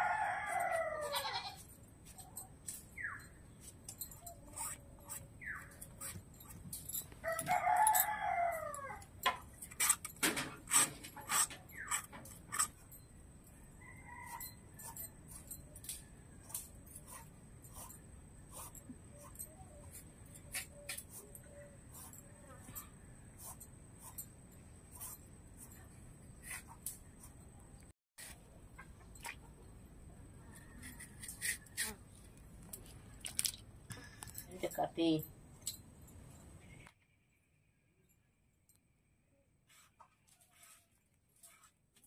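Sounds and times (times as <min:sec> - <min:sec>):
rooster crowing: 0:00.0 - 0:01.5, 0:07.2 - 0:09.1, 0:13.8 - 0:14.8.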